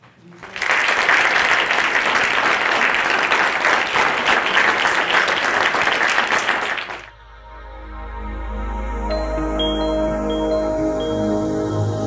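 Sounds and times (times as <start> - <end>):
audience applauding: 0.0 - 7.1
quiet ambient music: 7.1 - 12.0.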